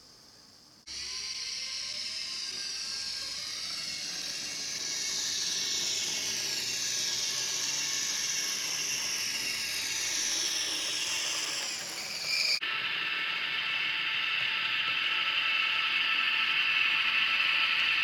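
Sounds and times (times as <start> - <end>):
model train motor whine: 0.8 - 18.0.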